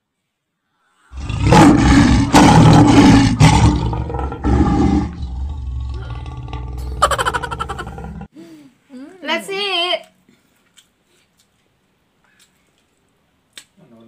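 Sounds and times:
loud animal roar: 1.2 - 8.3.

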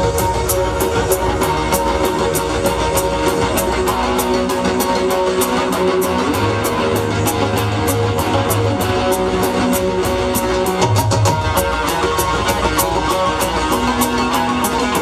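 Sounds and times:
electric guitar: 0.0 - 15.0
keyboard: 0.0 - 15.0
quick percussion beat: 0.0 - 15.0.

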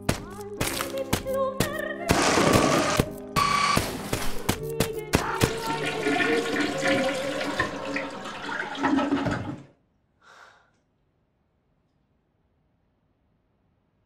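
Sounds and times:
toilet flushing: 5.5 - 9.8.

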